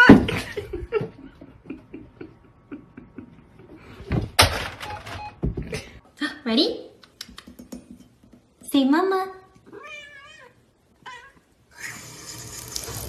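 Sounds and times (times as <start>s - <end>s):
picture frame rattling against wall: 4.2s - 5.2s.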